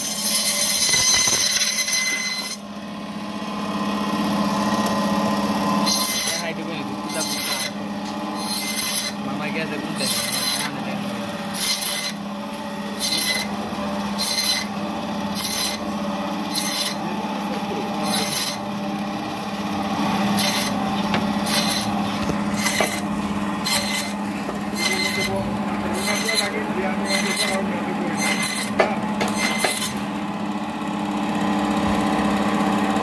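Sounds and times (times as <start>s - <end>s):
saw blade grating through fish: 0.0s - 2.7s, 5.8s - 18.8s, 20.0s - 30.1s
band saw humming: 0.0s - 33.0s.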